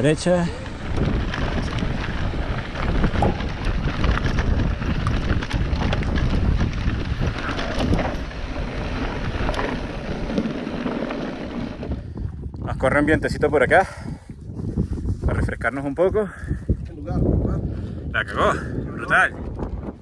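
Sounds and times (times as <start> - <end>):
bike tyres crunching on gravel: 0.0 - 12.2
wind on microphone: 0.0 - 20.0.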